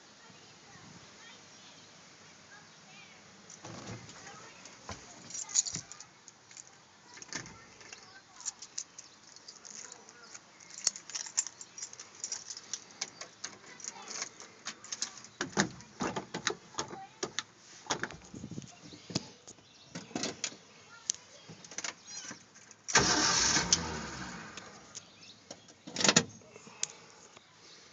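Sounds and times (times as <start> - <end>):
keys jangling on key ring: 5.3 - 6.0, 8.4 - 12.8.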